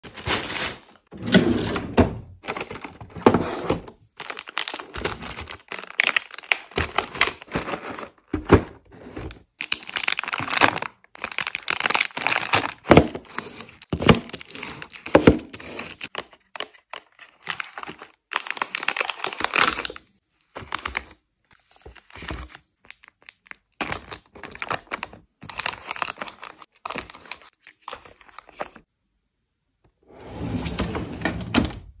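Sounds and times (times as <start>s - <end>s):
packaging crinkling: 0.0s - 1.1s, 4.2s - 8.5s, 9.1s - 20.0s, 22.0s - 28.8s
boxes knocking in drawer: 7.7s - 9.3s.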